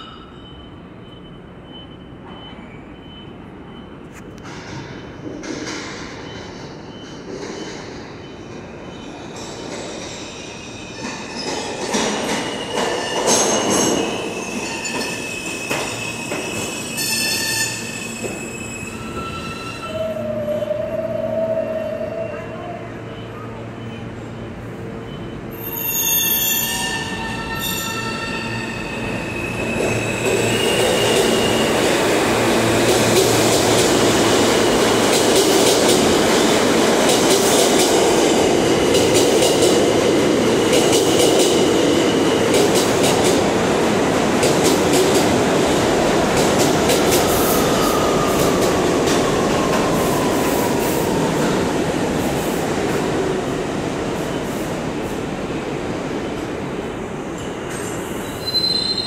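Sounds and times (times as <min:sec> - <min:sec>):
train rumble and wheel clicks: 0:00.0 - 0:59.0
wheel squeal: 0:25.5 - 0:31.7, 0:58.2 - 0:59.0.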